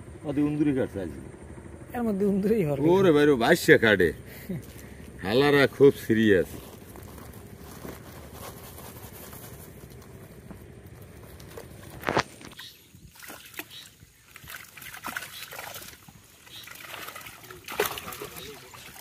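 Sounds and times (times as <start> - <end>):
steady low rumble: 0.0 - 12.6
net sloshing in muddy water: 13.0 - 19.0.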